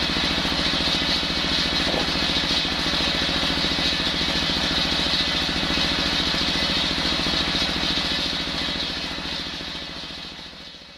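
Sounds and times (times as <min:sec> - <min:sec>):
diesel engine running: 0:00.0 - 0:08.1.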